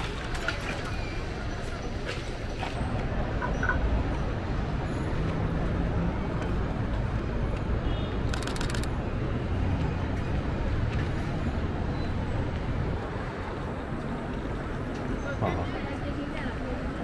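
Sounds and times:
street traffic rumble: 0:00.0 - 0:17.0
camera shutter clicks: 0:08.2 - 0:08.9.

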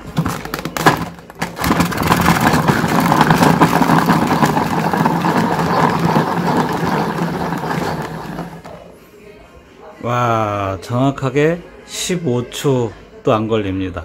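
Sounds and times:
pieces clattering in plastic bowl: 0:00.0 - 0:08.7
electric chopper motor humming: 0:01.7 - 0:08.7.

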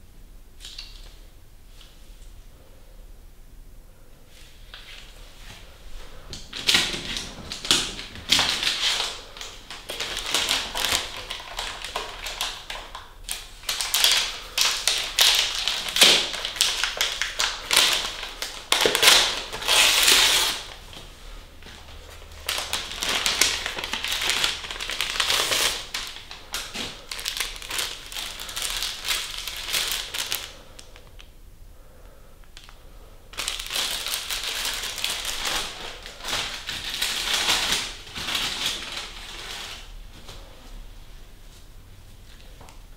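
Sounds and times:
paper wrapper crinkling: 0:06.3 - 0:31.3, 0:32.6 - 0:40.5.

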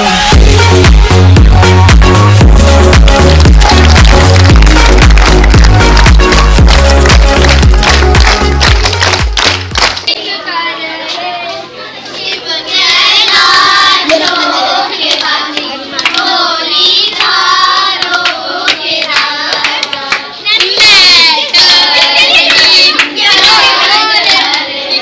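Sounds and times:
hand claps: 0:01.9 - 0:10.1, 0:14.0 - 0:16.3, 0:18.0 - 0:24.6
children singing: 0:12.1 - 0:25.0.

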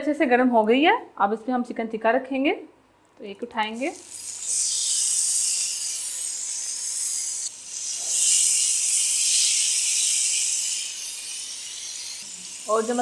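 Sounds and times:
chicken sizzling on grill pan: 0:04.0 - 0:13.0.

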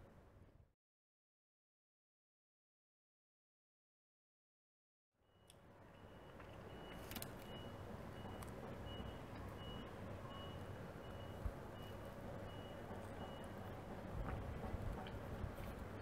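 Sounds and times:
faint electronic beeping: 0:05.3 - 0:13.8.

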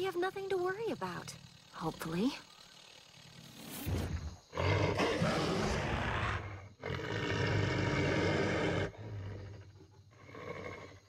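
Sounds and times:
cartoon beast snarling: 0:04.5 - 0:11.0.

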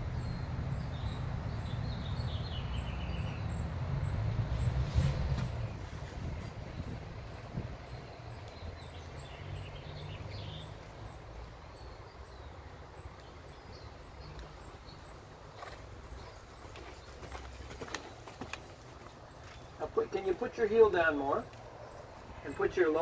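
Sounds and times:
horse hoofbeats on sand: 0:15.5 - 0:20.9.

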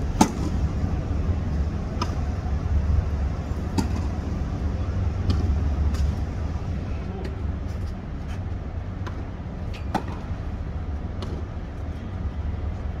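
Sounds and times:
tennis rackets hitting ball: 0:00.2 - 0:00.6, 0:01.9 - 0:02.2, 0:03.7 - 0:04.1, 0:05.2 - 0:06.1, 0:09.8 - 0:10.3.

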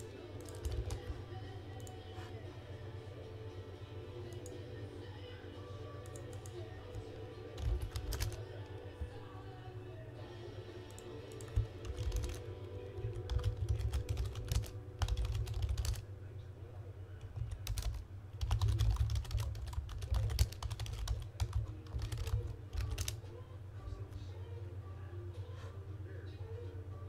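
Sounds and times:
typing on computer keyboard: 0:00.0 - 0:01.2, 0:06.0 - 0:08.4, 0:10.9 - 0:16.0, 0:17.2 - 0:23.2
steady low hum: 0:00.0 - 0:27.0.

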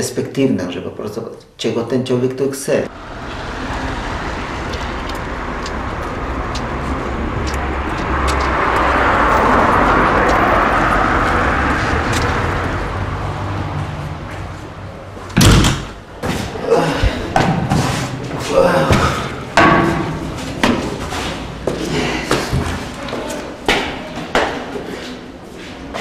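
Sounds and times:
city street traffic: 0:02.8 - 0:26.0
vehicle passing: 0:02.8 - 0:26.0
loud thump: 0:15.4 - 0:16.4.

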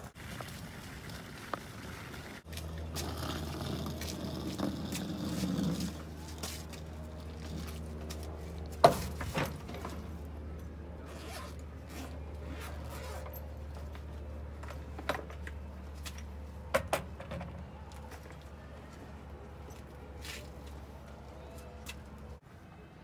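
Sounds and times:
zipper opening: 0:03.0 - 0:06.1, 0:11.0 - 0:13.4.

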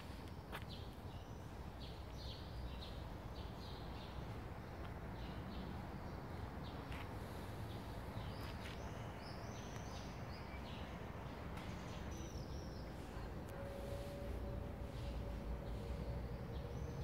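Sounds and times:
small birds chirping: 0:00.0 - 0:13.5
low outdoor rumble: 0:00.0 - 0:17.0.

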